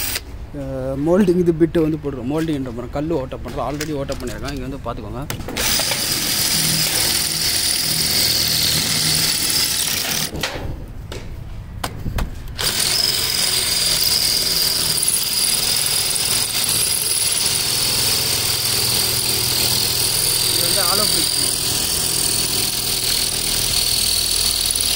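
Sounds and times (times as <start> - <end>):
cordless drill boring into stone: 5.6 - 10.3, 12.6 - 24.9
drill clicks: 5.6 - 10.3, 12.5 - 24.9.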